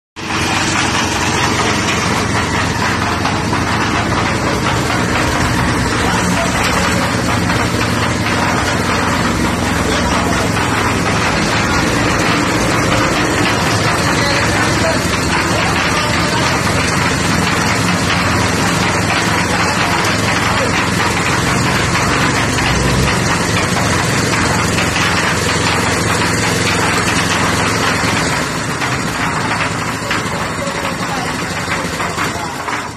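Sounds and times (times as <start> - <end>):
concrete mixer engine running: 0.2 - 32.9.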